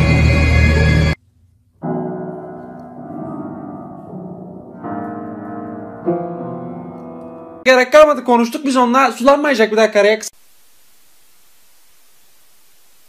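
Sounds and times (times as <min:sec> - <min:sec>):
piano chords: 0:00.0 - 0:07.7.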